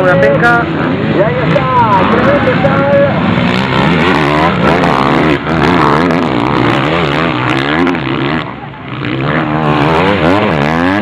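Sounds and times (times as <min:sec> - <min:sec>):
motorbike engines revving: 0:00.0 - 0:11.0.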